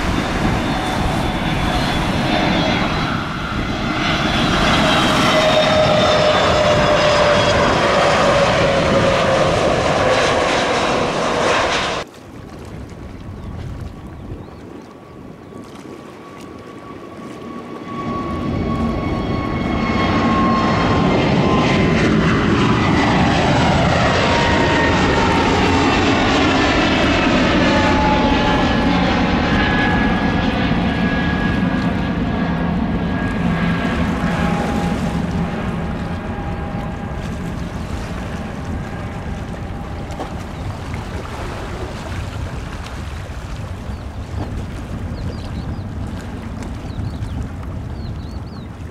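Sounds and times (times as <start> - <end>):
jet airliner climbing: 0.0 - 12.0, 16.8 - 41.0
jet engine whine gliding down: 0.0 - 12.1, 13.1 - 48.9.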